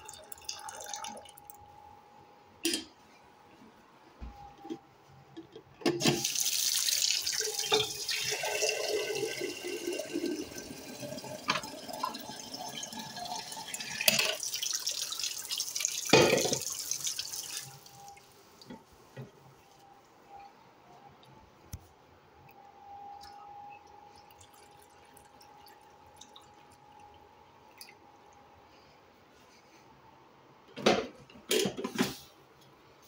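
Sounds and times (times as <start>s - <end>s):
tap water filling a glass carafe: 6.0s - 18.8s.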